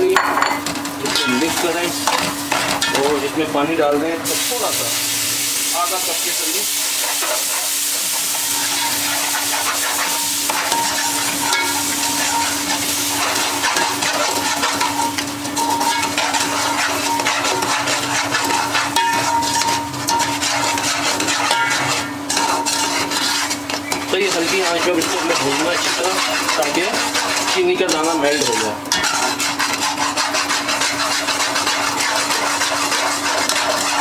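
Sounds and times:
food sizzling: 0.0s - 34.0s
metal spoon scraping a pot: 6.8s - 34.0s.

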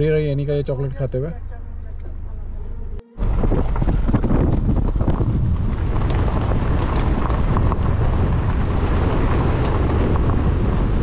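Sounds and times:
wind buffeting microphone: 3.2s - 11.0s.

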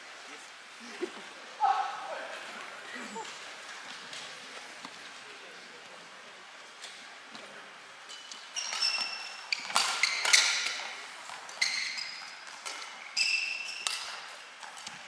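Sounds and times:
quiet hall noise: 0.0s - 15.0s
shoe squeaks on court: 8.1s - 14.3s.

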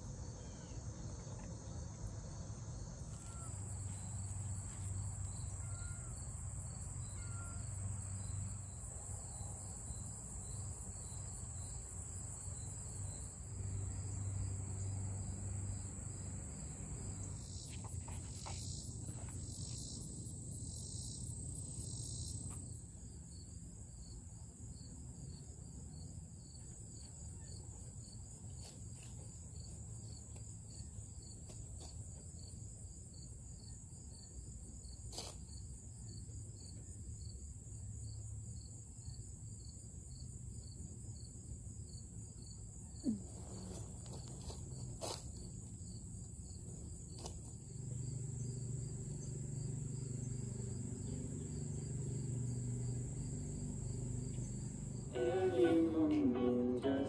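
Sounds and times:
crickets trilling: 0.0s - 57.0s.

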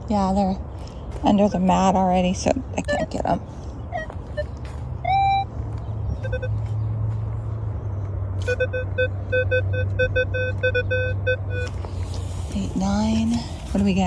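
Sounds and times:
metal detector beeping: 3.9s - 5.5s, 6.2s - 6.6s, 8.4s - 11.8s.

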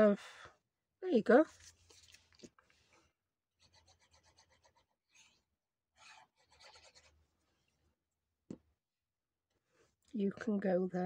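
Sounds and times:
glue bottle rubbing on paper: 3.6s - 5.3s, 6.0s - 7.1s.

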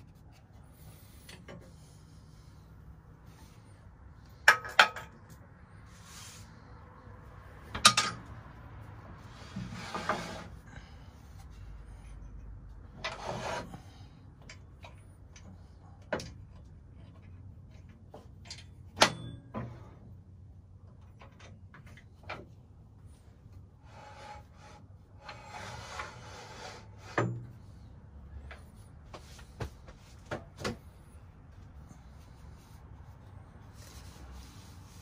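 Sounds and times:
hand rubbing wood: 0.0s - 2.2s, 30.9s - 35.0s.

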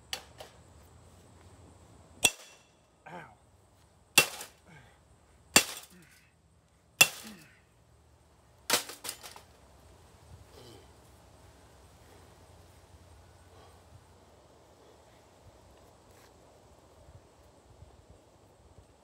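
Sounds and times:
toaster oven being smashed: 5.6s - 6.0s, 8.7s - 9.4s.

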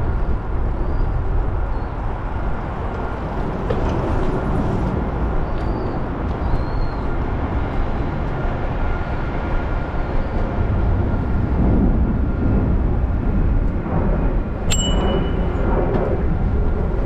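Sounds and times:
bike tyres rumbling on path: 1.8s - 17.0s
brief high ping: 14.7s - 15.5s.

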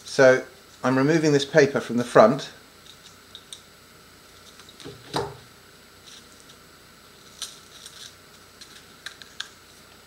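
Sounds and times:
paper crinkling and peeling: 7.2s - 9.9s.

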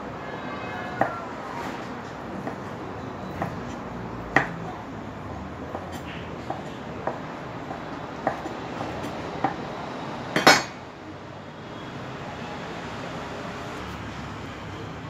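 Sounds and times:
kitchenware clinking: 10.4s - 10.8s.

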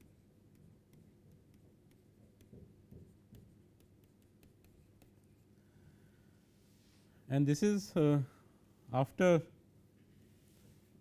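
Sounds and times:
stylus tapping on tablet screen: 0.0s - 5.4s.

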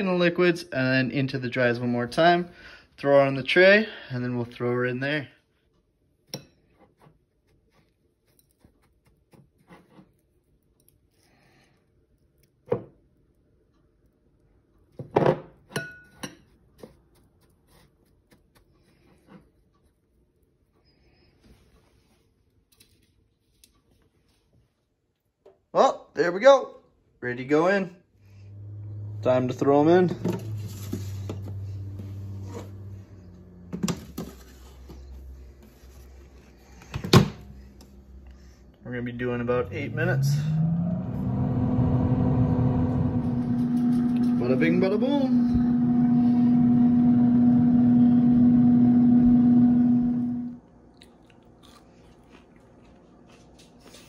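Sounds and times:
low hum: 28.2s - 51.4s.

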